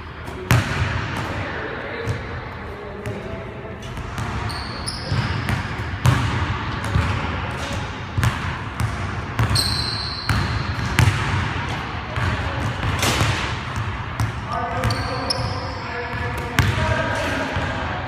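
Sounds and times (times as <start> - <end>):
basketball bouncing on gym floor: 0.2 - 1.4, 3.0 - 17.8
sneakers squeaking on court: 3.0 - 17.0.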